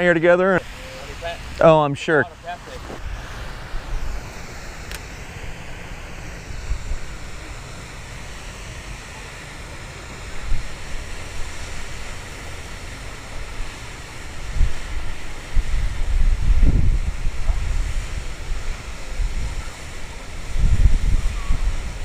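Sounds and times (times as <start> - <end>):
wind buffeting microphone: 2.7 - 8.4, 13.3 - 22.0.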